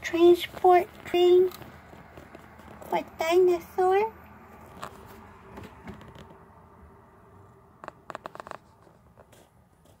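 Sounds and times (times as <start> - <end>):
tablet handling noise: 7.8 - 10.0.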